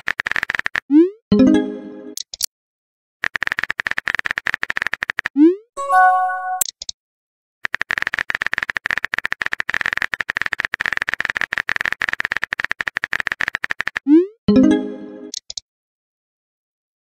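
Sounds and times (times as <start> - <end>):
short bright chime: 5.8 - 6.6.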